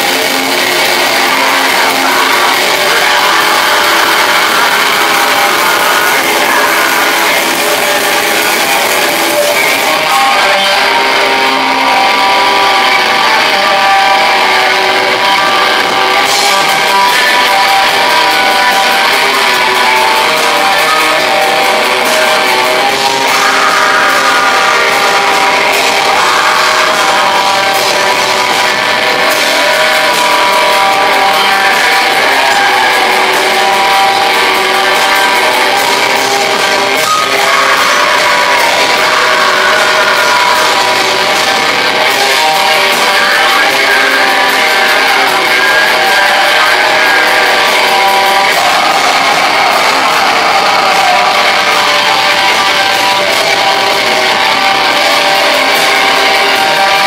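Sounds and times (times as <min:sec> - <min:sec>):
distorted guitars: 0:00.0 - 0:57.0
drums: 0:00.0 - 0:57.0.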